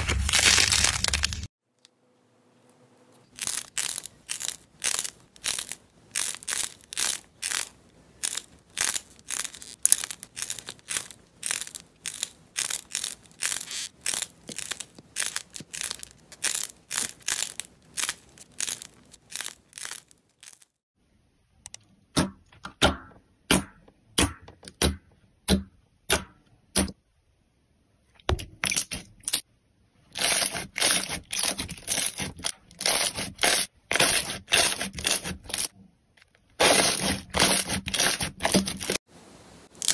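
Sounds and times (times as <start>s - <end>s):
crackly coating tearing: 0.0s - 1.5s, 3.2s - 20.8s, 30.2s - 39.0s.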